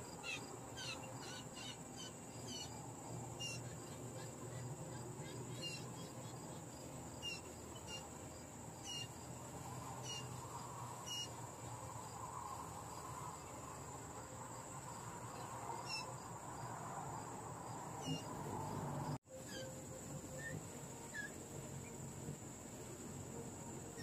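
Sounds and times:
high insect drone: 0:00.0 - 0:24.0.

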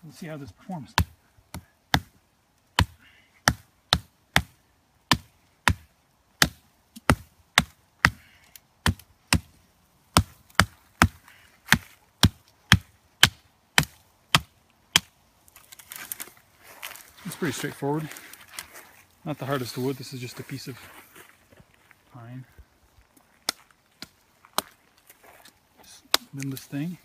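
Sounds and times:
axe chopping sapling: 0:00.9 - 0:16.2, 0:26.0 - 0:26.7.

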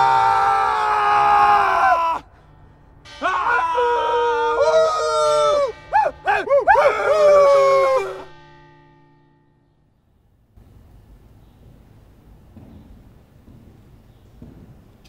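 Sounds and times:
wordless voice-like wailing: 0:03.2 - 0:08.4.

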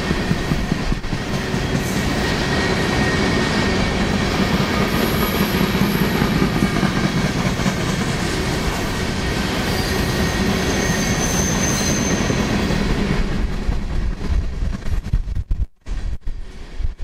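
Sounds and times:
high wheel squeal: 0:09.4 - 0:12.6.

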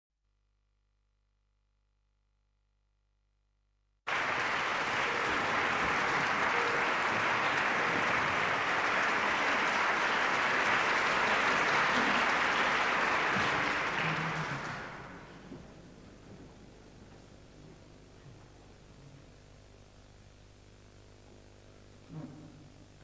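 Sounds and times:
audience applauding: 0:04.1 - 0:15.5.

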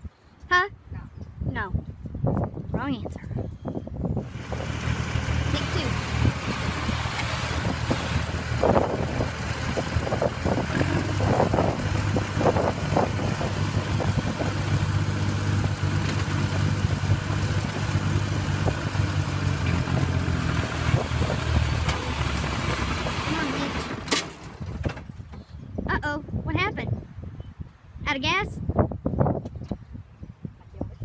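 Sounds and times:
crawler dozer engine under load: 0:04.2 - 0:25.3.

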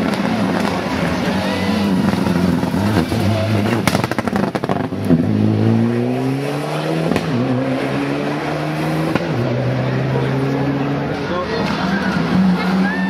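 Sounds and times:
rally car engine revving: 0:00.0 - 0:13.0
engine crackling pops: 0:03.7 - 0:05.2, 0:07.1 - 0:07.4.

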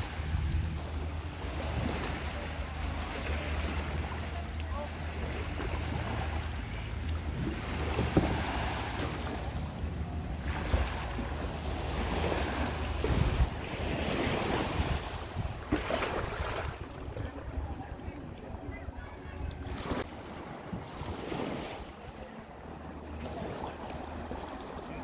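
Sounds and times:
wind buffeting microphone: 0:00.0 - 0:02.1, 0:12.0 - 0:21.5
small waves washing onto shore: 0:00.0 - 0:25.0.

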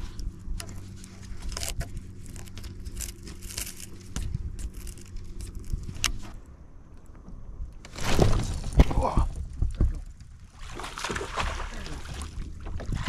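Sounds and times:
steady low hum: 0:00.0 - 0:13.0
handling clicks and crackles: 0:00.2 - 0:07.2.

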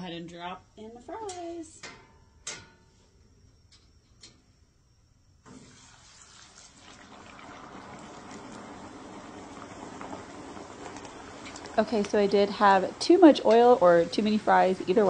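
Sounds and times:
fries sizzling in hot oil: 0:05.5 - 0:15.0.

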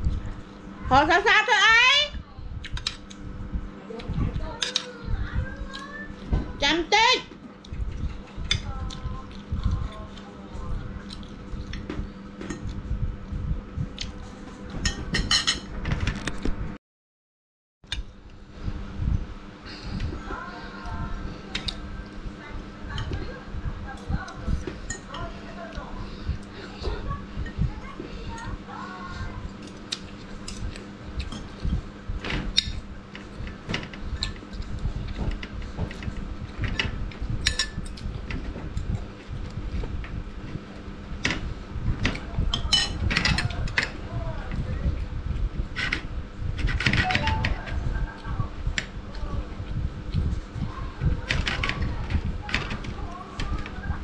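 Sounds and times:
steady low hum: 0:00.0 - 0:16.8, 0:17.8 - 0:54.0
chewing and mouth sounds: 0:07.6 - 0:11.9, 0:29.5 - 0:31.8.

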